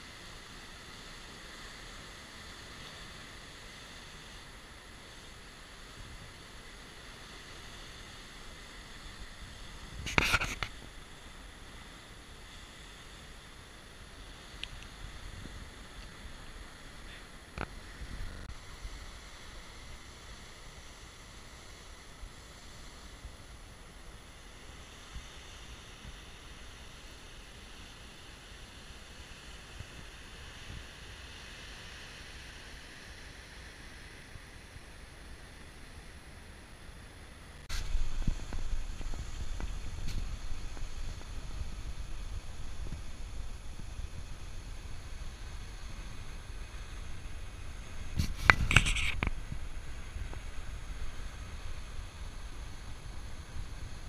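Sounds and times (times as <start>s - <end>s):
wind rumbling on microphone: 8.6s - 11.3s, 14.4s - 20.6s, 37.6s - 54.0s.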